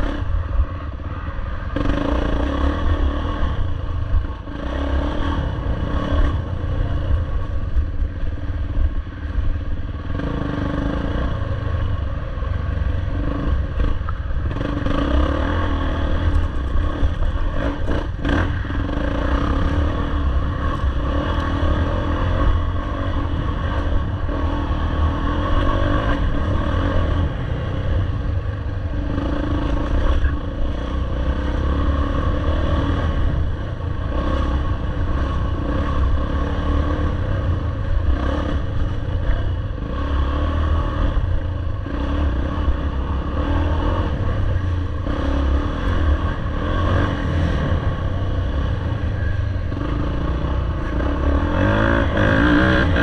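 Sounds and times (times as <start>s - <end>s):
dirt bike engine revving: 28.9s - 53.0s.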